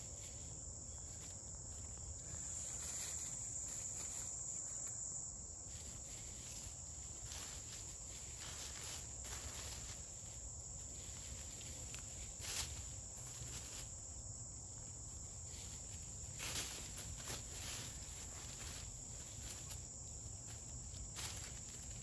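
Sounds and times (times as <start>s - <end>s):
high-pitched insect chorus: 0.0s - 22.0s
hens scratching in dry leaves: 5.7s - 14.2s, 14.8s - 22.0s.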